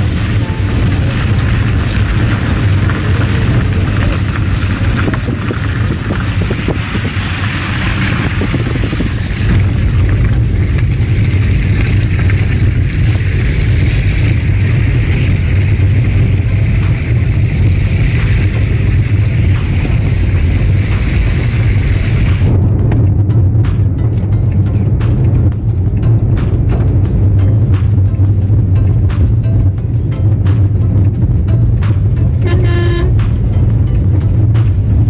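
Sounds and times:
tyres hissing on wet road: 0.0s - 22.6s
car interior rumble: 0.0s - 35.0s
wind buffeting microphone: 0.0s - 35.0s.

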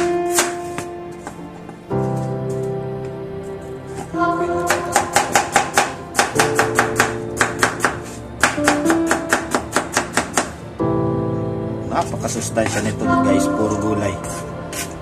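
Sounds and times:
background music: 0.0s - 15.0s
knife chopping on wooden board: 4.7s - 10.5s.

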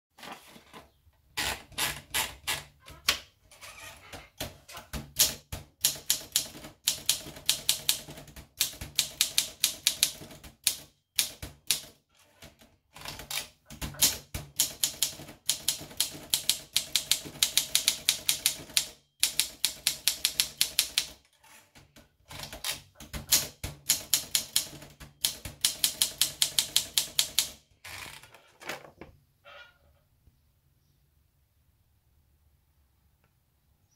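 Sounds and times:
typewriter keys clacking: 13.0s - 21.2s, 22.3s - 27.6s.

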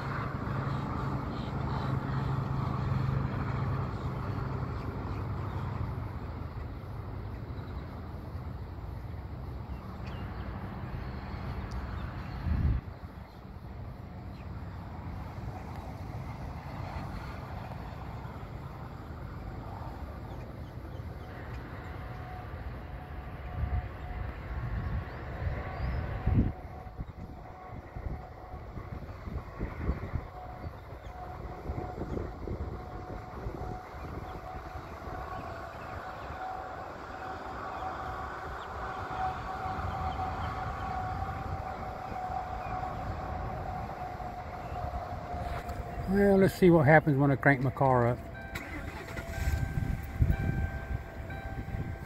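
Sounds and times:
wind buffeting microphone: 11.6s - 13.9s, 23.4s - 46.7s, 48.2s - 52.0s.

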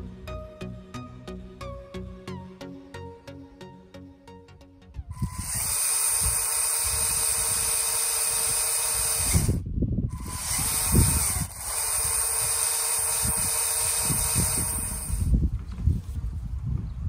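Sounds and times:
toy motors whining: 5.2s - 15.3s.

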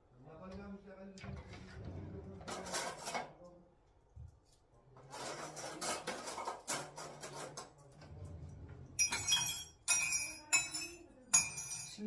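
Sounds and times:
glassware clinking: 9.0s - 12.0s.

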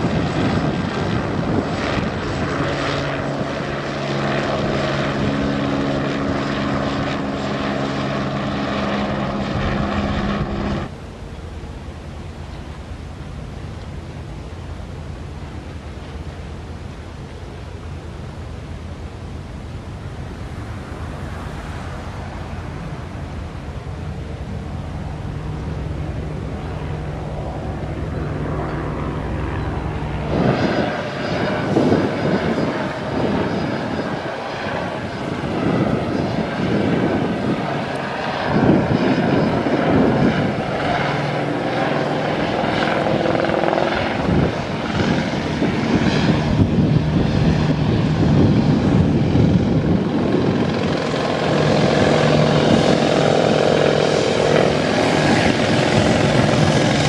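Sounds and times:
helicopter rotor chop: 0.0s - 11.0s, 20.1s - 57.0s.

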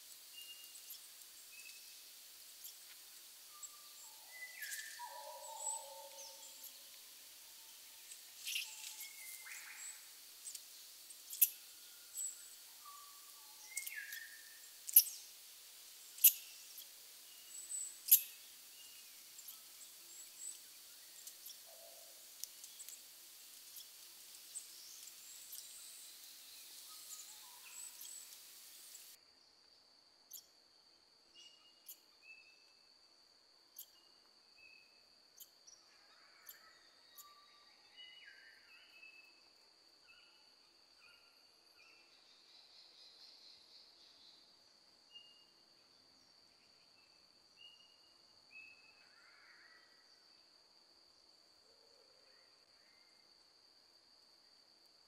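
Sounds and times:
steady high hiss: 0.0s - 29.2s
bird calls: 3.6s - 6.9s, 8.0s - 10.6s, 11.3s - 15.3s, 16.2s - 29.2s.

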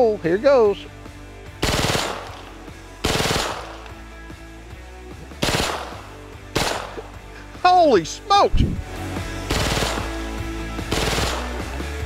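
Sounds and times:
rifle automatic fire bursts: 1.6s - 3.8s, 5.4s - 6.0s, 6.6s - 7.0s, 9.5s - 10.2s, 10.9s - 11.6s.

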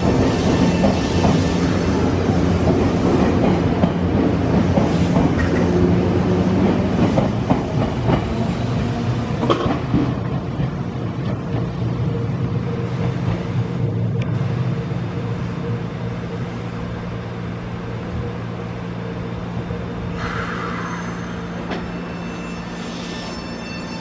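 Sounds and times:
electric train rumbling: 0.0s - 24.0s.

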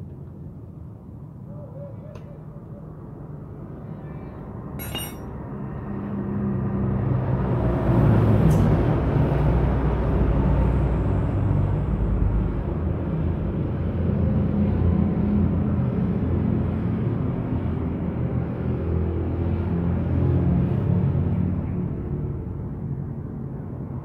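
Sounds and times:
hand tools clattering: 4.8s - 5.3s.

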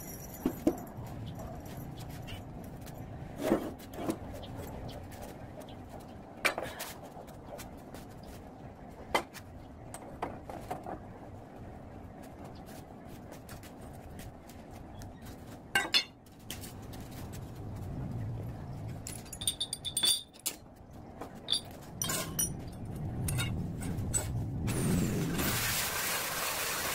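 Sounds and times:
metal clinks and knocks: 0.0s - 3.1s, 19.0s - 24.4s
low background hum: 0.0s - 25.8s.

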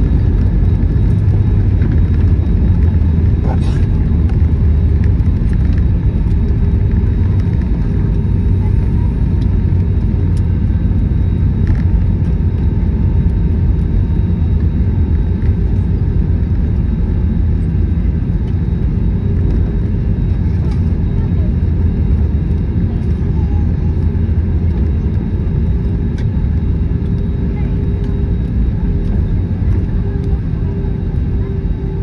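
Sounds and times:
airliner cabin rumble: 0.0s - 32.0s.

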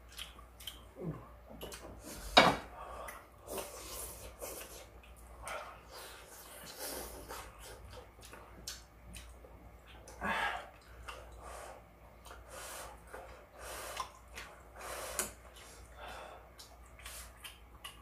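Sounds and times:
person chewing: 0.0s - 2.3s, 3.0s - 11.5s, 12.1s - 18.0s
person breathing: 2.0s - 4.4s, 10.2s - 14.1s, 14.8s - 16.5s.

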